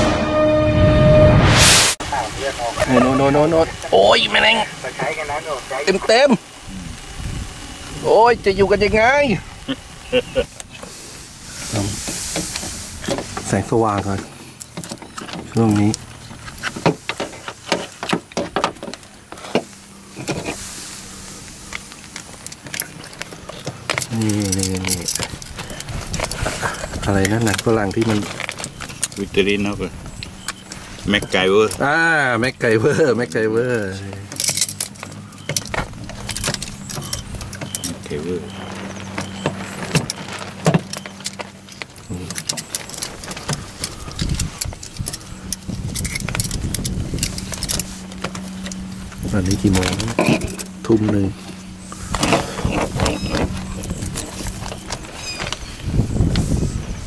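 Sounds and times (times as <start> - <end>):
low hum: 0.0 - 57.0
plastic reel and wires handled: 11.5 - 31.9, 33.2 - 56.7
small metal parts clinking: 21.7 - 31.8, 33.3 - 51.0, 51.6 - 55.7.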